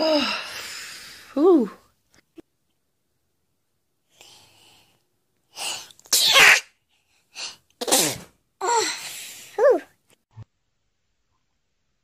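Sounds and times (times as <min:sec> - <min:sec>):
woman sneezing: 0:06.2 - 0:06.7.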